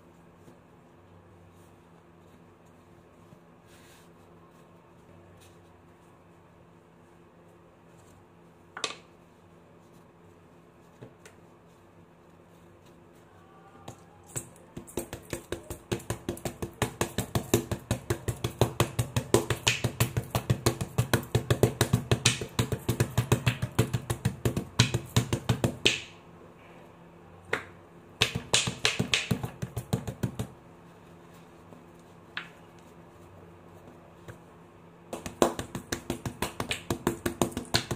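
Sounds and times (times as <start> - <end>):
hands clapping rapidly: 14.4 - 26.1, 27.6 - 30.5, 35.1 - 37.9.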